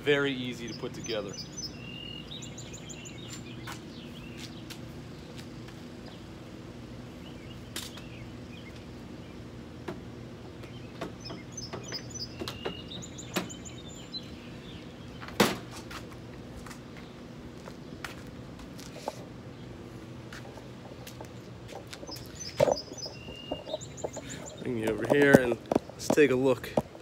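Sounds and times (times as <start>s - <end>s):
birds chirping: 0.0s - 27.0s
steady low hum: 0.0s - 27.0s.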